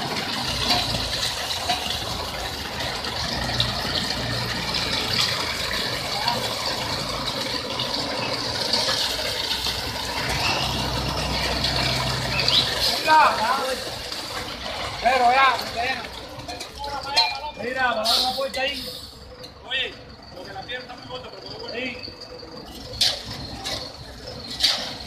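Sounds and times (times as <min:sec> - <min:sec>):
engine humming: 0:00.0 - 0:17.1
wet concrete pouring from chute: 0:00.0 - 0:25.0.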